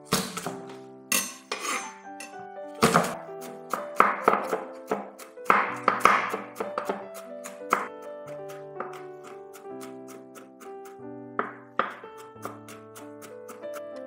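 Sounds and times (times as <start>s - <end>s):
background music: 0.0s - 14.0s
knife chopping on cutting board: 2.8s - 7.9s, 8.5s - 10.6s, 11.4s - 13.7s
knife smashing garlic on board: 2.8s - 7.9s, 11.4s - 13.7s.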